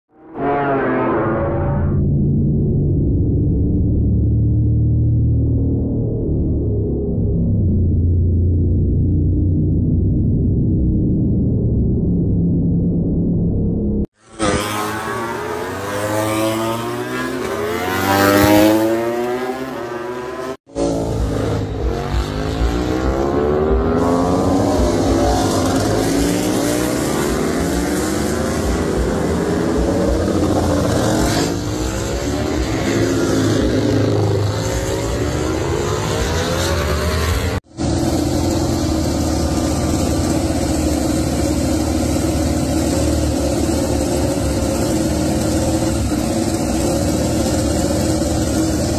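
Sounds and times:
engines running at steady pitch: 0.1 - 48.9
motorbikes passing at speed: 0.2 - 2.0, 14.2 - 48.9
race bike engines revving: 14.2 - 48.9.

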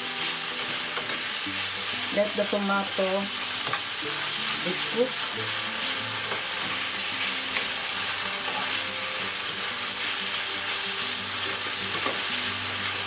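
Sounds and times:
vegetables sizzling in oil: 0.0 - 13.0
spoon scraping pan: 7.6 - 8.8.

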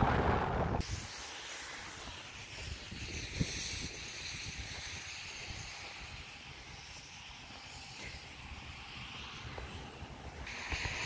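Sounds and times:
faint low rumble: 0.0 - 0.8
wind buffeting microphone: 0.0 - 1.0
steady rush of air: 0.0 - 11.0.

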